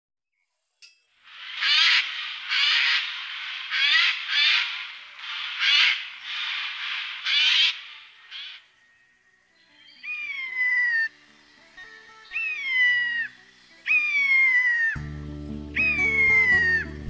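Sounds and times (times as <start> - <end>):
jay screeching: 15.8 - 17.0.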